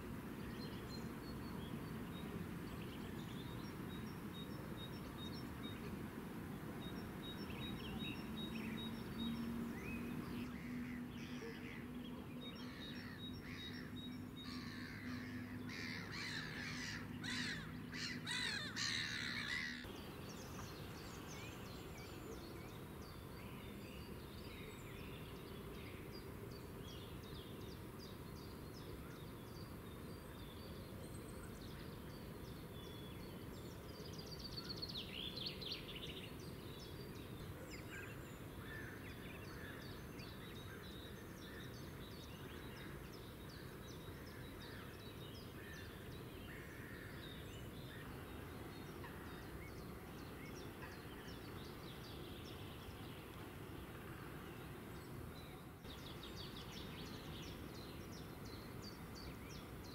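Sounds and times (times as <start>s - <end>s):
birdsong: 0.0s - 59.9s
birds chirping: 6.8s - 59.9s
birds calling: 7.4s - 22.7s.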